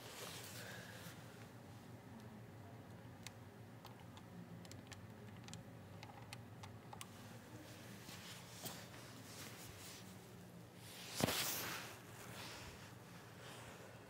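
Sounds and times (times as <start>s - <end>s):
soft rustling: 0.0s - 1.3s, 7.1s - 14.0s
low steady hum: 0.0s - 14.0s.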